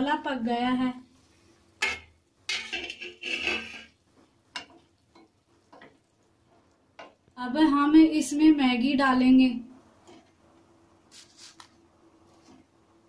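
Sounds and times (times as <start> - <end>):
wooden spatula scraping pan: 2.5 - 4.0.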